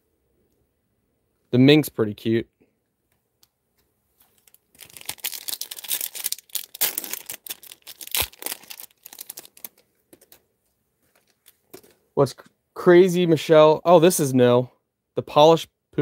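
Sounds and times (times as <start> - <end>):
foil wrapper crinkling: 4.2 - 10.4.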